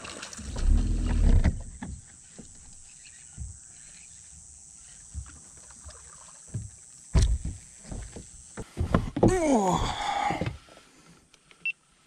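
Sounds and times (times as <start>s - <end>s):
faint knocks and thumps: 6.5s - 10.6s.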